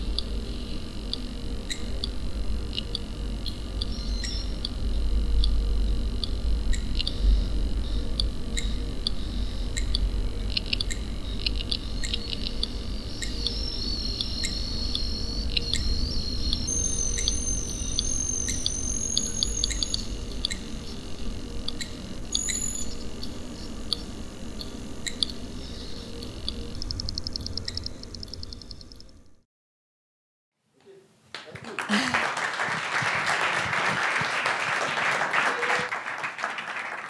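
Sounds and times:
high wavering electronic tones: 0.0s - 29.2s
sharp electronic clicks: 1.0s - 21.0s, 21.6s - 29.2s.

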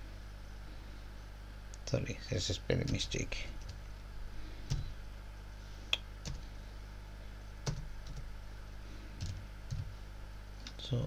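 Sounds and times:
steady low hum: 0.0s - 11.0s
computer keyboard key presses: 6.2s - 6.4s, 7.6s - 8.3s.

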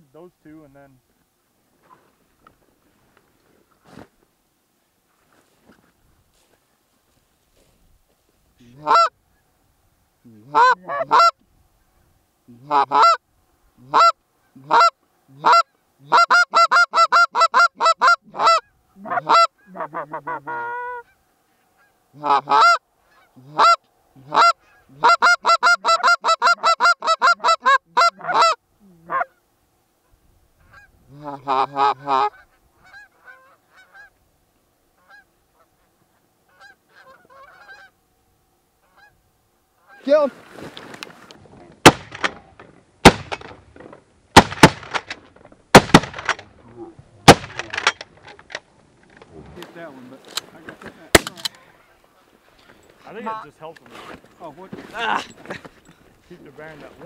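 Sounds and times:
goose honking: 8.6s - 9.2s, 10.4s - 11.4s, 12.5s - 13.2s, 13.8s - 29.4s, 30.6s - 34.2s, 35.0s - 38.0s, 38.8s - 39.2s, 39.8s - 40.2s.

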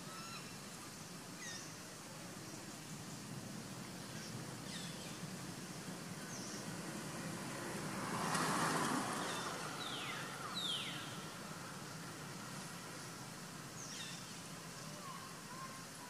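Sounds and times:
vehicle passing: 6.4s - 12.9s.

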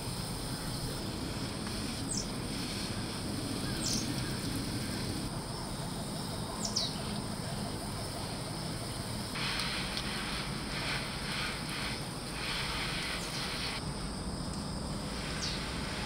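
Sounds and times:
hose nozzle spraying water: 1.3s - 5.3s, 9.2s - 13.8s
bird chirping: 3.6s - 5.2s, 6.5s - 7.1s.

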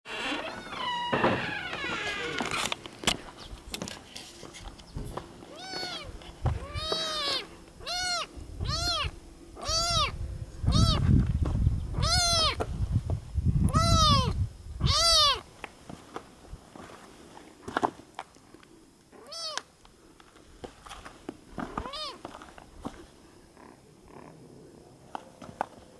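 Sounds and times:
kitten meowing: 5.5s - 11.0s, 11.9s - 12.6s, 13.6s - 15.4s, 19.2s - 19.7s, 21.8s - 22.2s
low rumbling noise: 6.0s - 15.3s.

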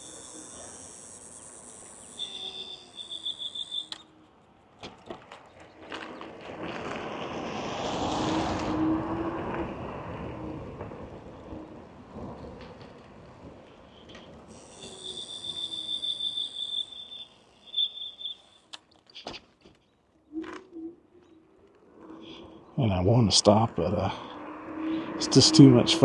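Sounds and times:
rapid high beeps: 0.0s - 4.0s, 14.7s - 18.6s
wind and tyre rush: 3.6s - 17.6s, 20.3s - 26.0s.

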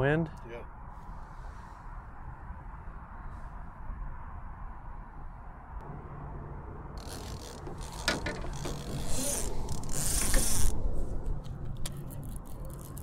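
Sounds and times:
fishing reel whirring: 7.0s - 10.8s.

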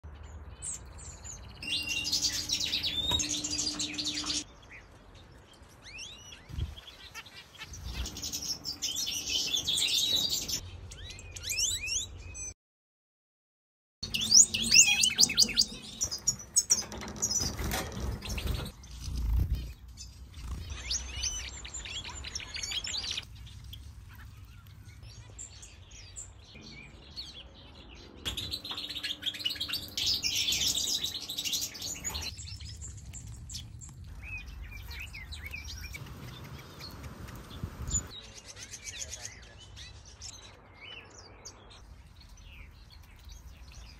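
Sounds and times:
goldfinches twittering and chirping: 1.0s - 4.4s, 6.0s - 11.9s, 14.0s - 23.8s, 26.6s - 32.6s, 34.2s - 38.1s.

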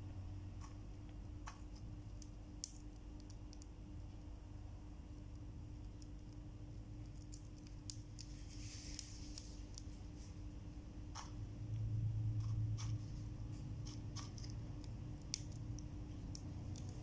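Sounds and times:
low steady hum: 0.0s - 17.0s
soft rustle: 8.2s - 10.5s
sharp clicks and ticks: 13.8s - 17.0s.

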